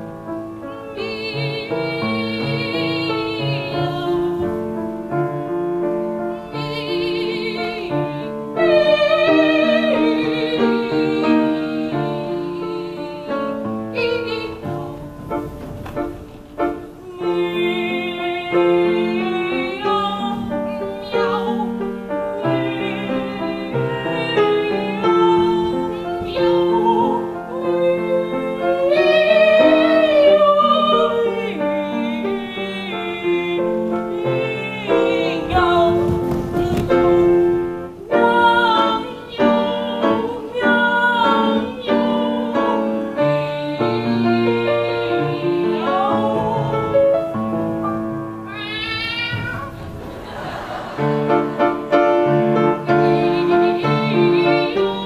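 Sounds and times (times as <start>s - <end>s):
grand piano accompaniment: 0.0s - 55.0s
youth choir singing: 50.1s - 55.0s.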